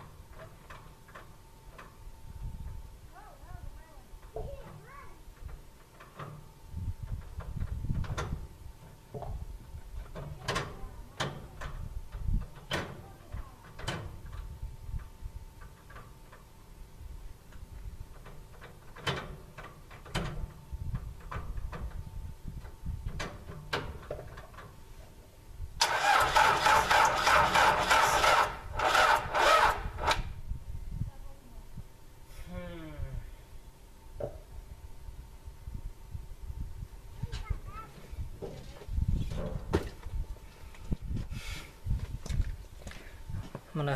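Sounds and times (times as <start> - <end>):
starter cranking diesel engine: 25.8 - 30.3.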